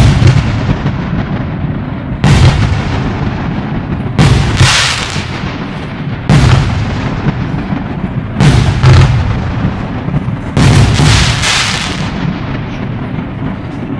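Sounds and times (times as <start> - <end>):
crackling hiss of fireworks: 0.0 - 13.9
fireworks bangs: 0.0 - 13.9.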